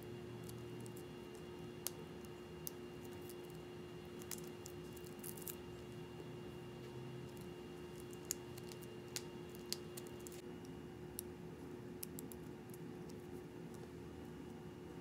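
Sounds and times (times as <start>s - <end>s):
steady low hum: 0.0s - 15.0s
vinyl peeling clicks and ticks: 7.2s - 11.3s, 12.0s - 13.9s.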